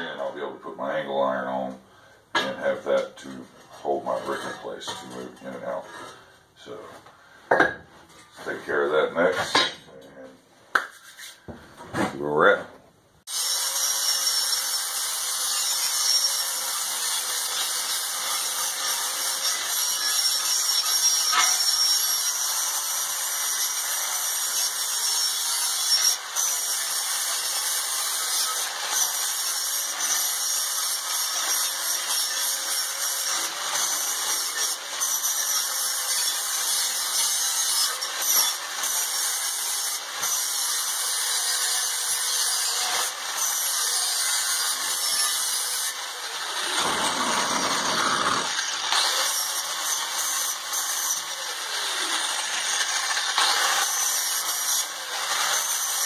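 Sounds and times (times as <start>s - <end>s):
angle grinder grinding steel: 13.3s - 56.0s.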